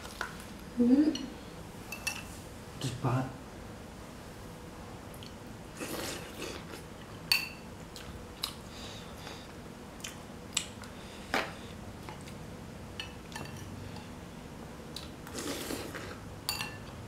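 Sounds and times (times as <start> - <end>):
spoon clinking glass bowl: 7.3 - 7.6, 16.5 - 16.9.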